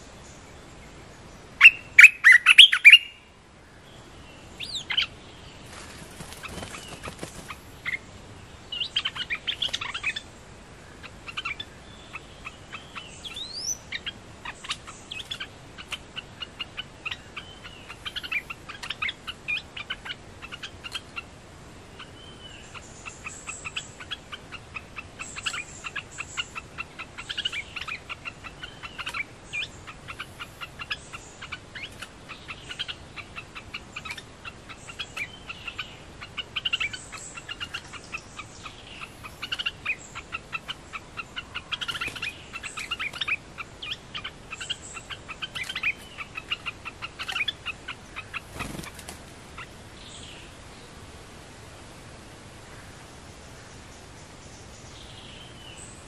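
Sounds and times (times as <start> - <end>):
birds chattering calls: 0.0 - 51.4
bird call notes and whistles: 1.6 - 3.2.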